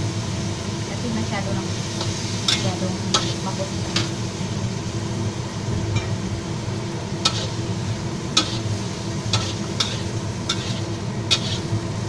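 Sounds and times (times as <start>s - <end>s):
food sizzling: 0.0s - 12.0s
metal spatula clanking on wok: 9.3s - 11.7s.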